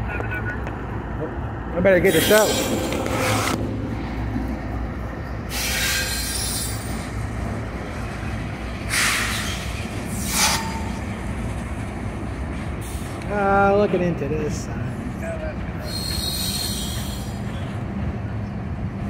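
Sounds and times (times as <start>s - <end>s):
freight train rumbling across bridge: 0.0s - 19.0s
high screeching bursts: 2.0s - 3.6s, 5.5s - 7.0s, 8.9s - 11.0s, 15.8s - 17.4s.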